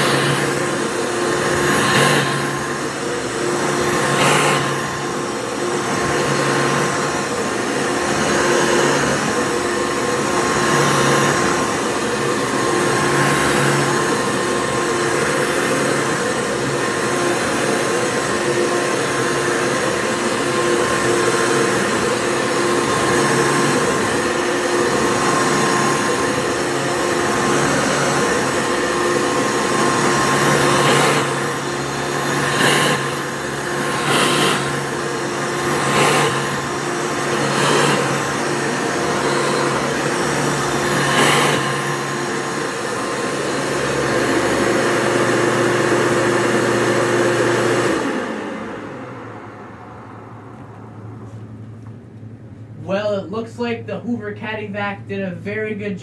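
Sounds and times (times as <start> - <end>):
vacuum cleaner running: 0.0 - 56.0.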